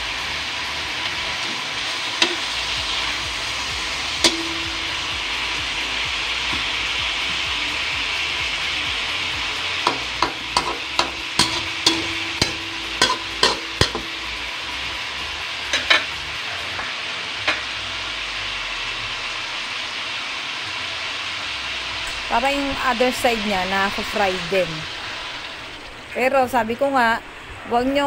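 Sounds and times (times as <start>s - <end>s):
meat sizzling in a wok: 0.0s - 27.7s
fork clinking against pan: 9.8s - 14.1s.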